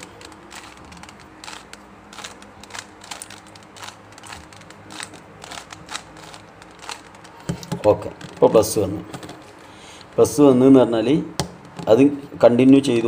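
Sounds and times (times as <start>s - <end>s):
plastic puzzle cube clicking: 0.0s - 8.5s.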